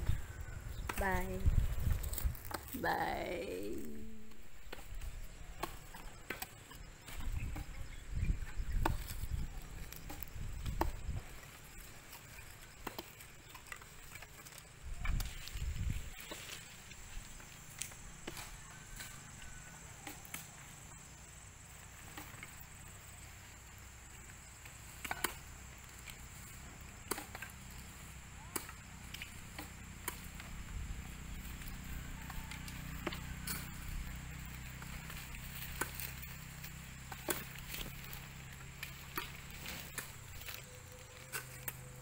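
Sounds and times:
blade chopping sugarcane stalks: 4.6 - 7.9, 8.6 - 15.4, 24.8 - 30.8, 31.6 - 42.0.

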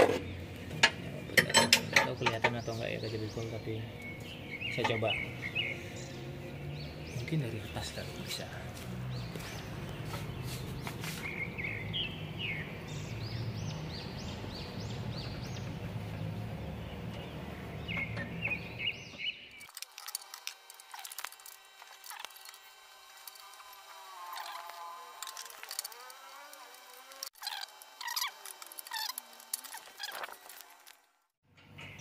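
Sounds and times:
small birds chirping: 0.0 - 30.7
low outdoor rumble: 0.1 - 19.5
hand tools clicking and tapping: 0.8 - 2.7.

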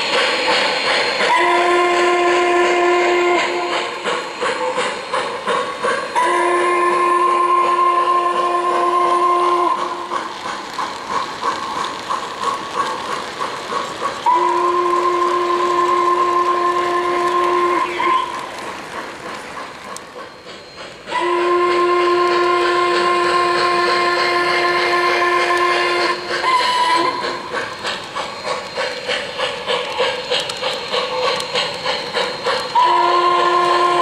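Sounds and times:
model locomotive chord whistle: 0.0 - 10.2, 14.2 - 18.6, 20.4 - 27.6, 29.7 - 34.0
model train cars clicking on track: 0.0 - 34.0.

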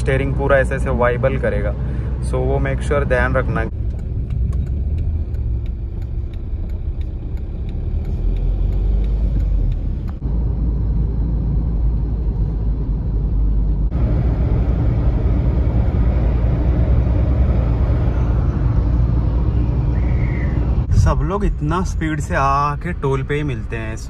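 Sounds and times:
road and engine rumble in car: 0.0 - 24.0
faint regular ticking: 3.7 - 10.2.

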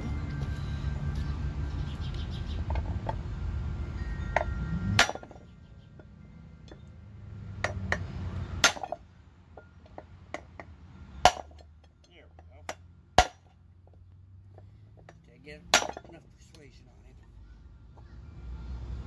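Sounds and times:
metal rod striking metal: 4.3 - 5.5, 7.6 - 9.0, 15.7 - 16.2.

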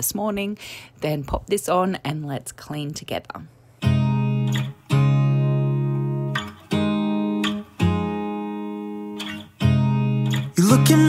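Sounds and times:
acoustic guitar strumming chords: 3.8 - 11.0.

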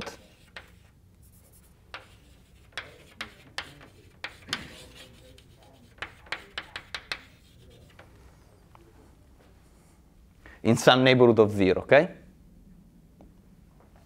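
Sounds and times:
chalk tapping and scratching: 0.0 - 8.2.

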